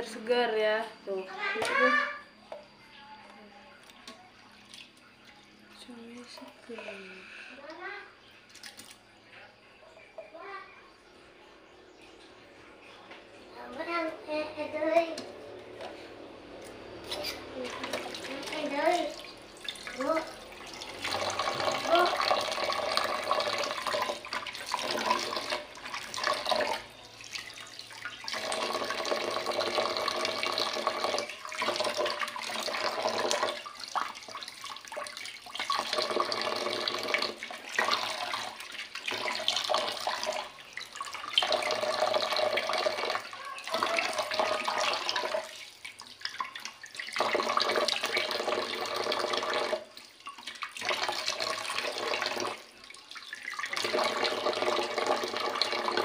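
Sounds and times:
tap water running into a pot: 0:13.1 - 0:56.0.

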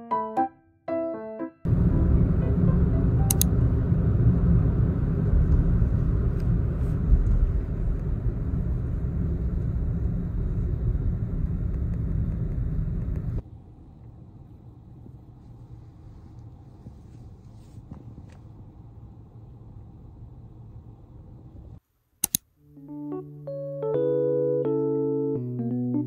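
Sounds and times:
car cabin road and engine rumble: 0:01.7 - 0:21.6.

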